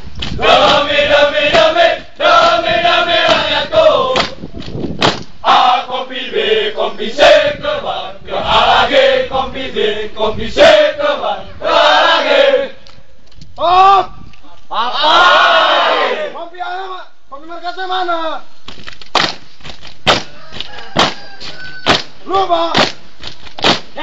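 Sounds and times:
soldiers chanting in unison: 0.4 - 4.4, 5.4 - 12.8, 14.7 - 16.4
sharp hand claps: 19.1 - 19.4, 21.9 - 22.1.

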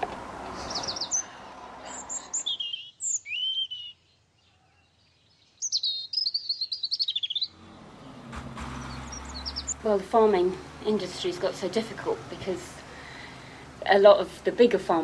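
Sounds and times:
low background noise: 0.0 - 15.0
songbird singing: 0.0 - 15.0.

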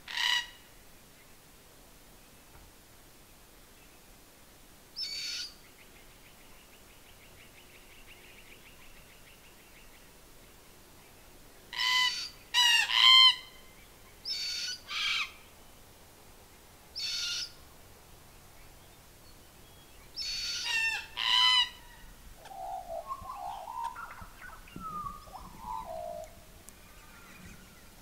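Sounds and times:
parrots rasping calls: 11.7 - 13.5, 20.2 - 22.0
faint rapid bird trill: 21.8 - 28.0.

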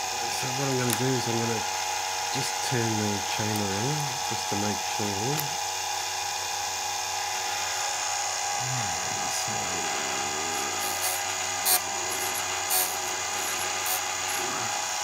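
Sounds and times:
chain sharpener motor whine: 0.0 - 15.0
grinding wheel on chain: 10.2 - 14.7.

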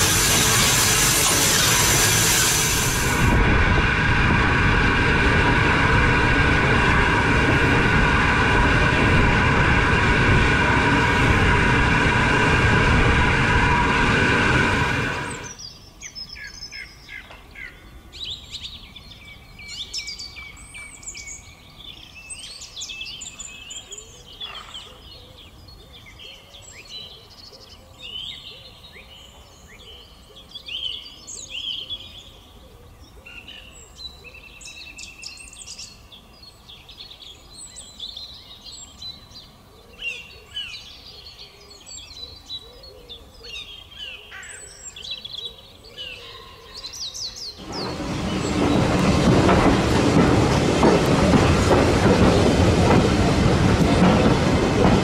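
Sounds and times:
steam locomotive hissing: 0.0 - 15.6, 47.6 - 55.0
birds chirping: 36.8 - 55.0.

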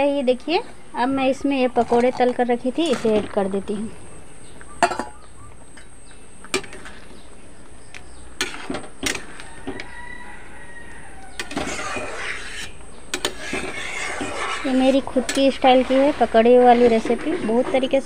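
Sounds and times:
rooster crowing: 9.3 - 12.3.

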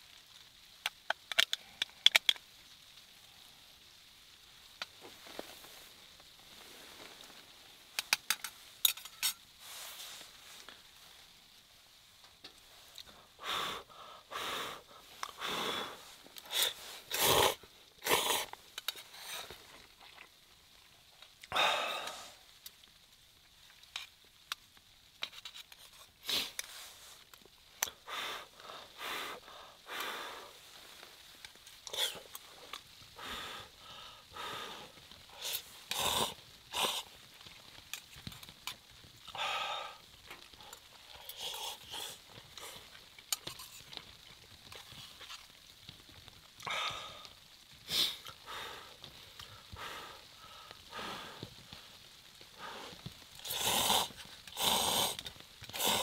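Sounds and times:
person blowing and slurping noodles: 13.4 - 20.3, 31.9 - 33.6, 34.4 - 37.2, 41.2 - 42.9, 47.9 - 48.3, 52.6 - 56.0.

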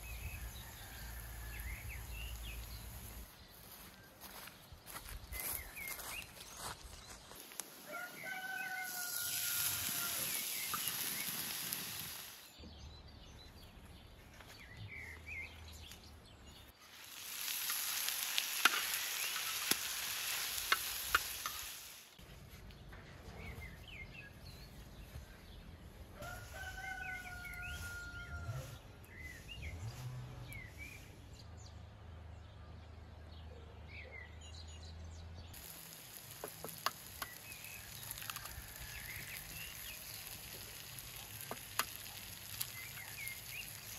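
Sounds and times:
vegetables sizzling in a pan: 0.0 - 3.2, 8.2 - 12.6, 16.8 - 22.2, 35.6 - 43.9
small birds chirping: 0.0 - 31.8, 33.9 - 43.9
rooster crowing: 0.3 - 2.2, 7.8 - 10.4, 26.2 - 28.9, 37.8 - 39.5.

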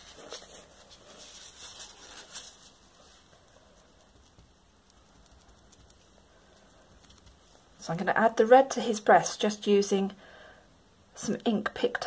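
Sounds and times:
paper rustling: 0.0 - 4.5.

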